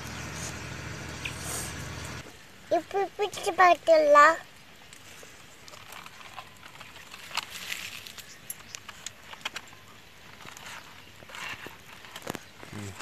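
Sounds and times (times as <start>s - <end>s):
wire unwinding clicks and rustles: 4.8s - 13.0s.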